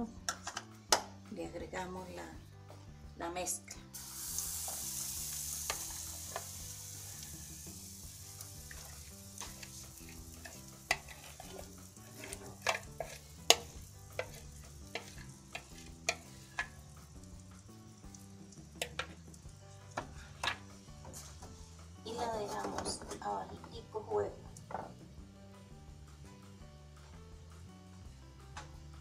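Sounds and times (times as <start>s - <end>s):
batter sizzling in a frying pan: 3.9s - 22.2s
metal spoon scraping a bowl: 8.7s - 16.8s.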